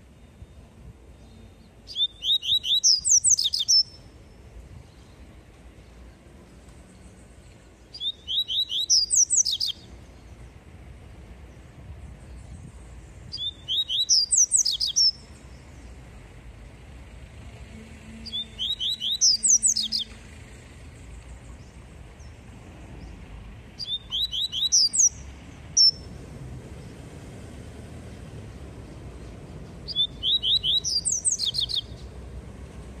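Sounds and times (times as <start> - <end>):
bird singing high repeated notes: 0.2 - 4.4, 7.8 - 10.3, 13.3 - 15.4, 18.2 - 20.2, 23.8 - 26.0, 29.8 - 32.1.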